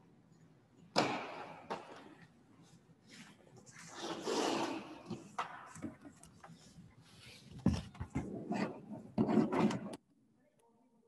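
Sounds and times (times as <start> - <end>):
rubbing and scraping: 8.2 - 10.0.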